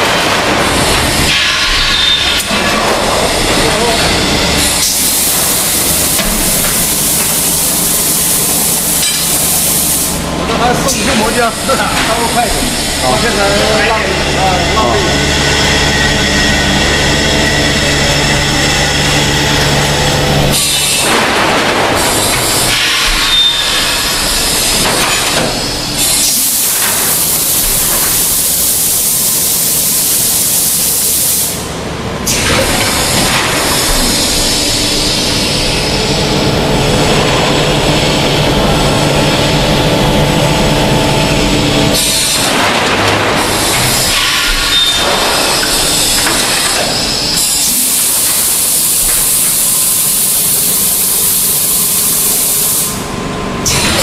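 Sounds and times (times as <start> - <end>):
machine running: 0.0 - 54.0.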